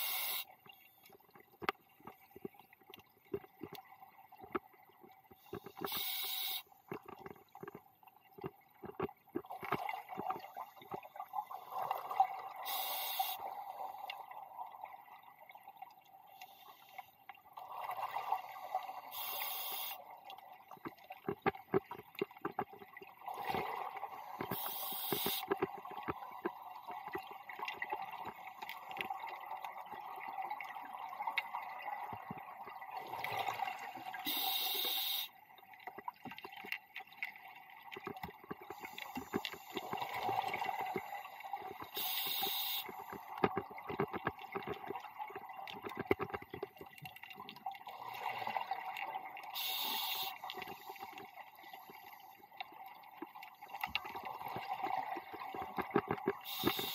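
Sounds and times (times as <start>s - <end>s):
regulator inhalation hiss: 0.0s - 0.5s, 5.8s - 6.6s, 12.7s - 13.4s, 19.1s - 20.0s, 24.6s - 25.4s, 34.2s - 35.3s, 41.9s - 43.0s, 49.6s - 51.0s, 56.5s - 56.9s
bubbling crackle: 1.1s - 13.4s, 20.5s - 56.9s.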